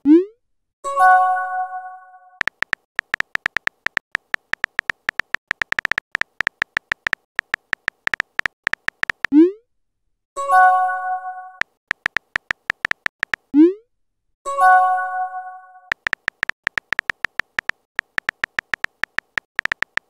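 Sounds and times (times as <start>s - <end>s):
keyboard tap clicks: 2.4s - 9.3s, 11.9s - 13.5s, 15.9s - 20.0s.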